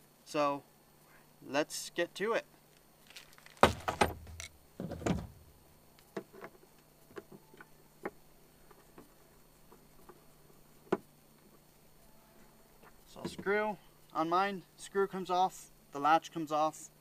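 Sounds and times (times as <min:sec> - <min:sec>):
loud knocks and clatter: 0:03.6 - 0:05.4.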